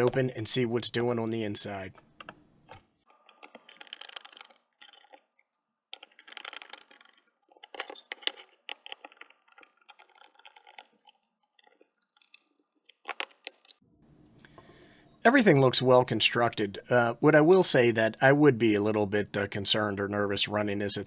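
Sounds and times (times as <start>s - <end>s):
screwdriver scraping and clicking: 2.2s - 12.4s.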